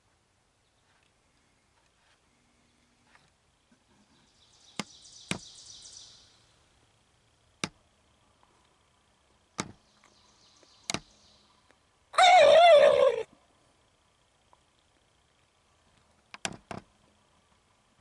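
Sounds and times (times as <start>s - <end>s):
turkey gobbling: 12.2s - 13.3s.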